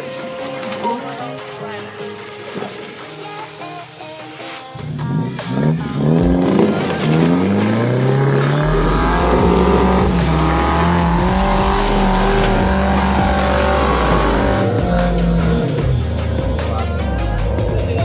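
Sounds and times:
engine revving at high revs: 0:04.8 - 0:18.0.

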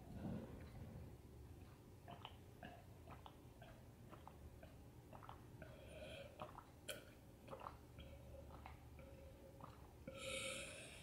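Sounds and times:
wet chewing mouth clicks: 0:01.6 - 0:10.2.

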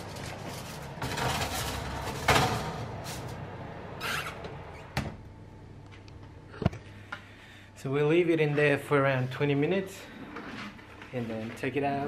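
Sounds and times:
baking tray scraping on oven rack: 0:00.0 - 0:03.4
low steady hum: 0:00.0 - 0:12.0.

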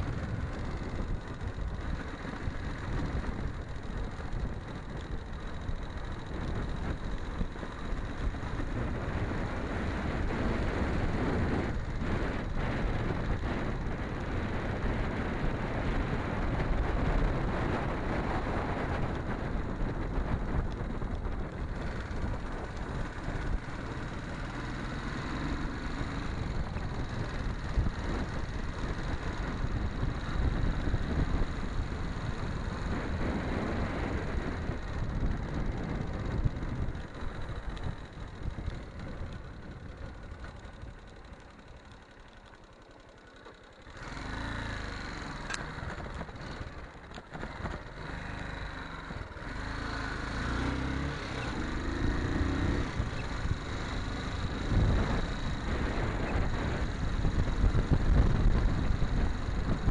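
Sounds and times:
wind noise on microphone: 0:00.0 - 0:24.3, 0:25.9 - 0:41.3, 0:44.0 - 0:59.9
motorcycle engine riding: 0:00.0 - 0:59.9.

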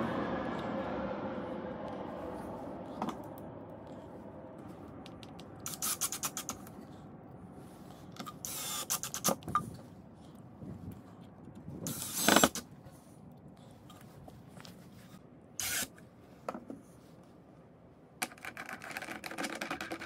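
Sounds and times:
low hum: 0:00.0 - 0:08.6
drill driving screws into wood: 0:08.4 - 0:09.6, 0:11.9 - 0:12.6, 0:15.6 - 0:15.9.

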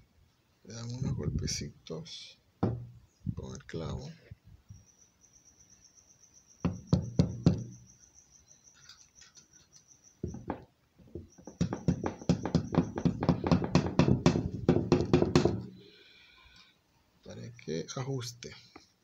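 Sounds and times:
nail tapping metal nut: 0:11.4 - 0:15.6.

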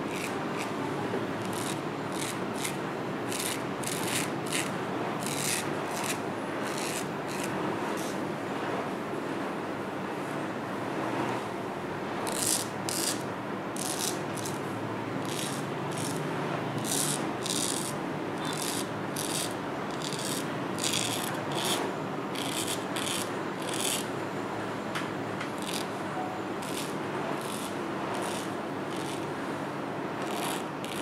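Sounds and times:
razor scraping stubble: 0:00.1 - 0:00.8, 0:01.4 - 0:08.2, 0:12.3 - 0:14.6, 0:15.2 - 0:24.1, 0:25.6 - 0:25.9, 0:26.6 - 0:29.3, 0:30.2 - 0:31.0.

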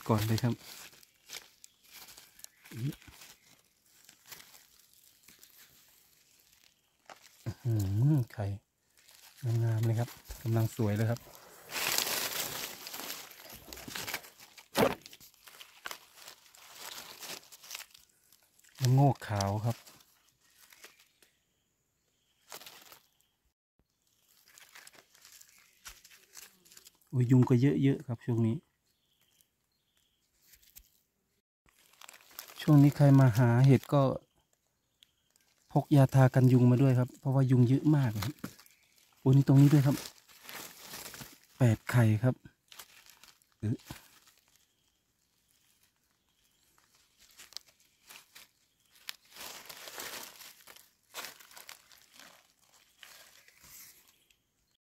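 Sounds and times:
scraping in soil: 0:00.0 - 0:21.2, 0:38.1 - 0:41.9, 0:46.5 - 0:54.3
dry leaves rustling: 0:00.0 - 0:21.3, 0:22.4 - 0:23.2, 0:24.0 - 0:27.1, 0:31.7 - 0:34.0, 0:35.3 - 0:54.4.

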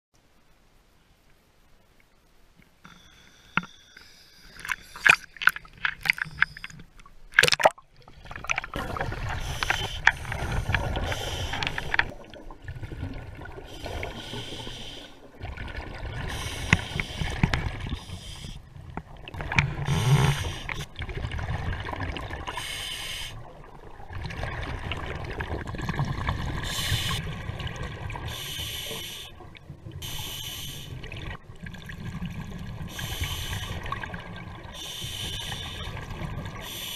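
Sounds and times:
regulator breathing and bubbles: 0:02.8 - 0:36.9
water splashes: 0:04.4 - 0:36.9.

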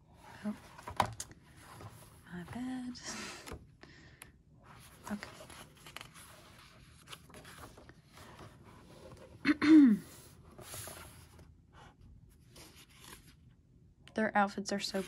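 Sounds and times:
paper pages rustling: 0:04.7 - 0:09.4, 0:10.2 - 0:11.4, 0:12.4 - 0:13.4.

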